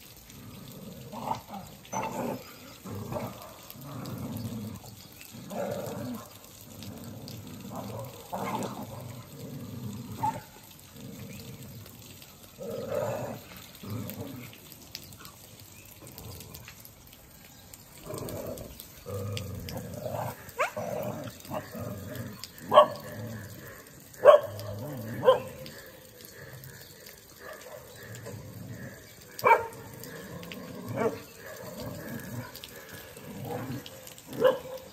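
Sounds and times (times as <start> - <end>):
dogs fighting and barking: 0.3 - 15.3, 18.0 - 34.9
sharp loud dog barks: 22.7 - 23.0, 24.2 - 25.6, 29.4 - 29.8, 34.4 - 34.9.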